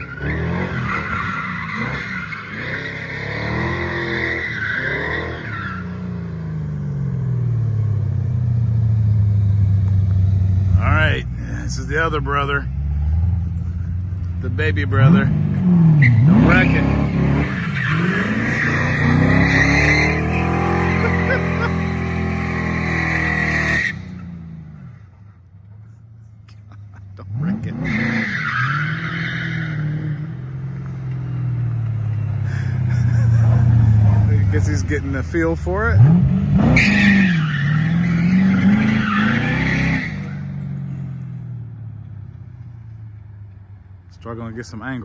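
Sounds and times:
car engine revving: 0:00.0 - 0:25.2, 0:26.5 - 0:42.3
car engine revving hard: 0:01.7 - 0:06.2, 0:14.9 - 0:23.9, 0:27.3 - 0:28.3, 0:35.9 - 0:40.4.

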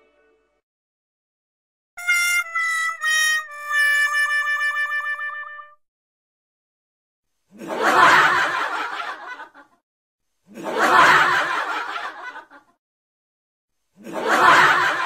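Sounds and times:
snickering laughter: 0:14.0 - 0:15.0.

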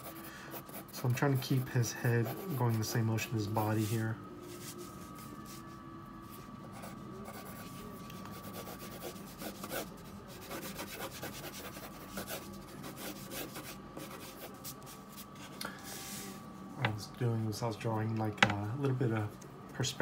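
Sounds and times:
pencil scratching on paper: 0:00.0 - 0:01.0, 0:01.6 - 0:02.9, 0:06.7 - 0:15.5.

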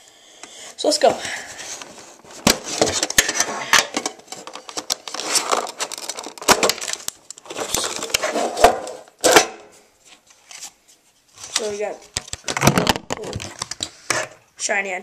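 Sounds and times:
rustling: 0:01.3 - 0:09.1.

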